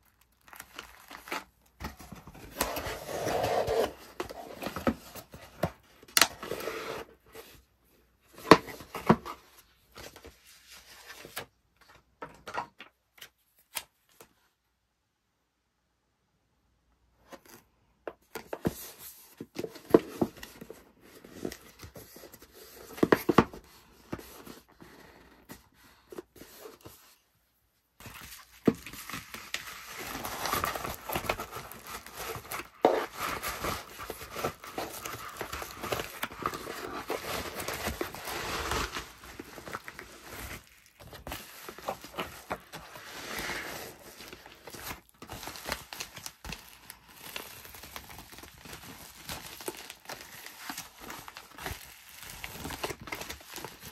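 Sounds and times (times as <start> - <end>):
plastic mailer crinkling: 28.0 - 53.9.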